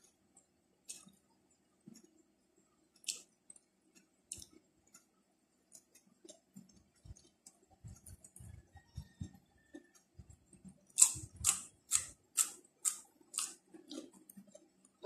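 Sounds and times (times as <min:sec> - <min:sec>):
soft low chewing thuds: 0:00.0 - 0:02.2, 0:02.9 - 0:15.0
person chewing: 0:00.9 - 0:01.2, 0:03.0 - 0:03.7, 0:04.3 - 0:05.1, 0:05.7 - 0:15.0.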